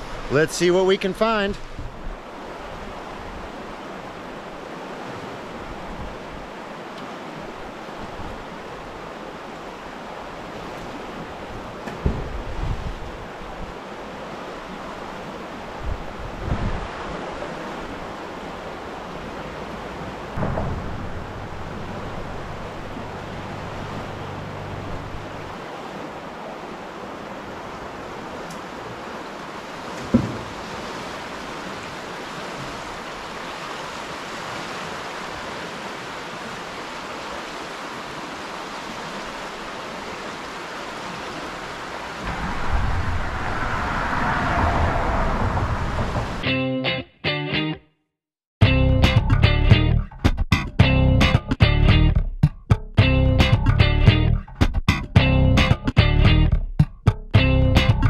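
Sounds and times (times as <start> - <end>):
river water rushing: 0.0 - 46.5
low rumble: 20.4 - 25.5, 42.3 - 46.4.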